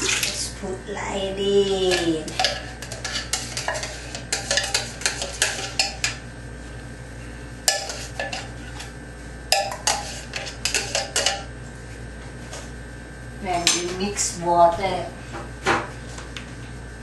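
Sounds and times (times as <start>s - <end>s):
tin can clinking against pot: 1.9s - 6.2s.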